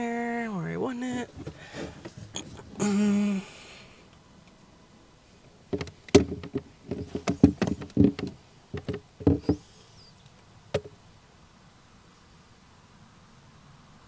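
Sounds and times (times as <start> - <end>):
screw clattering against plastic: 5.7 - 9.6
screwdriver knocking on plastic: 5.7 - 9.6.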